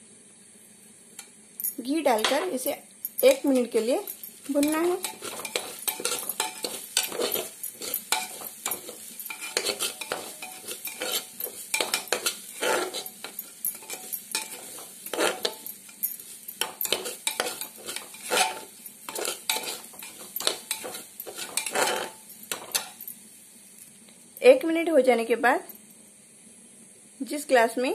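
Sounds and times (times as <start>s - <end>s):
metal spatula scraping pot: 2.1s - 23.0s.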